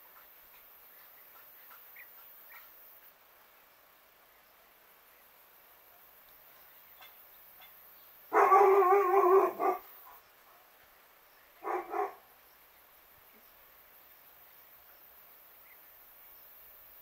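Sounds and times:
dog calling out: 0:08.3 - 0:09.9, 0:11.6 - 0:12.2.

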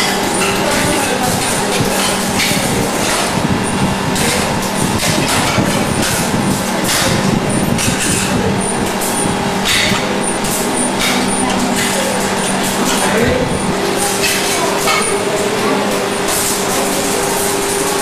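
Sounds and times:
machinery clatter and knocks: 0:00.0 - 0:18.0
machinery low hum: 0:00.0 - 0:18.0.

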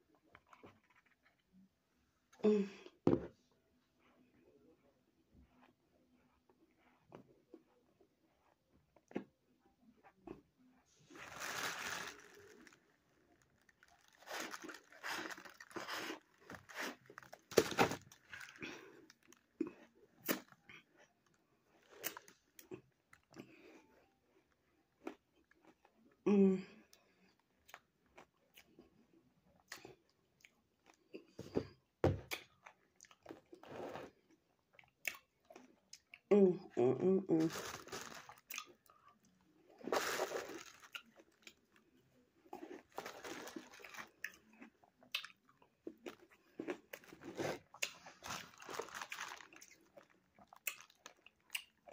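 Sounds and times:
ice crunching as chewed: 0:10.0 - 0:26.2, 0:37.4 - 0:51.9
plastic bag crinkling: 0:11.1 - 0:18.6, 0:37.4 - 0:38.5, 0:39.8 - 0:40.9, 0:42.9 - 0:44.2, 0:48.1 - 0:50.0.

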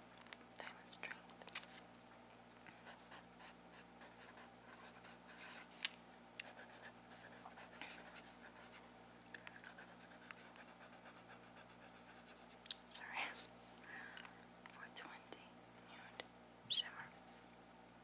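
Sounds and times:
low steady hum: 0:00.0 - 0:18.0
pencil writing on paper: 0:02.8 - 0:05.7, 0:06.4 - 0:08.8.

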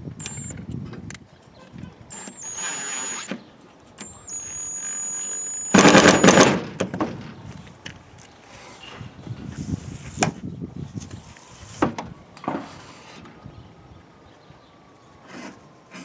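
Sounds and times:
cordless drill motor whining: 0:00.2 - 0:00.6, 0:02.1 - 0:03.4, 0:04.0 - 0:06.6
loud rattling burst: 0:05.7 - 0:06.8.

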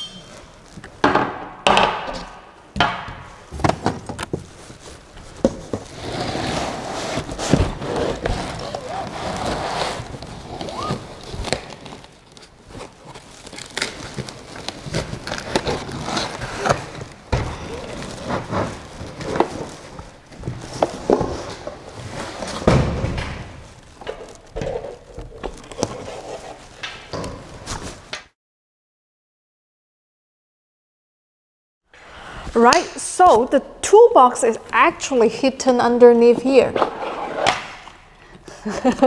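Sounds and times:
cardboard packing rustling: 0:03.6 - 0:28.1.

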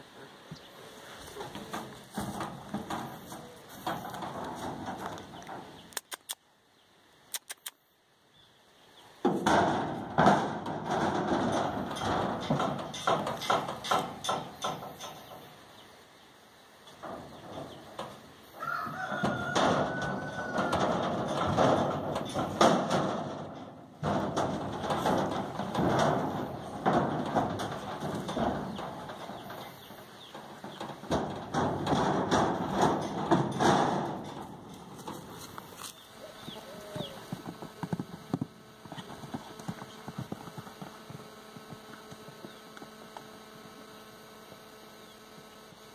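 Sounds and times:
horse hooves on trailer floor: 0:00.5 - 0:05.9, 0:09.2 - 0:15.7, 0:16.8 - 0:43.3
sharp clicks: 0:05.1 - 0:06.4, 0:07.3 - 0:07.8.

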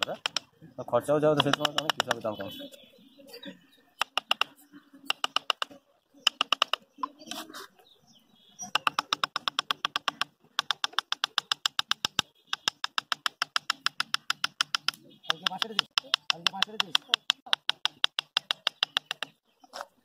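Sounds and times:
tool tapping on bamboo: 0:00.0 - 0:00.5, 0:01.4 - 0:02.3, 0:04.0 - 0:04.5, 0:05.1 - 0:07.1, 0:08.7 - 0:19.4.

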